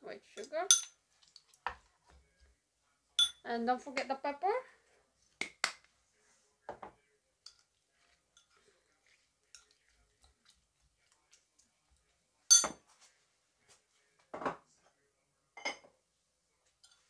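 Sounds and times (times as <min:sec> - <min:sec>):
spoon clinking against bowl: 0:00.7 - 0:01.0, 0:03.2 - 0:03.4, 0:07.4 - 0:07.7, 0:08.3 - 0:08.7, 0:09.5 - 0:09.9, 0:12.5 - 0:12.8, 0:16.8 - 0:17.0.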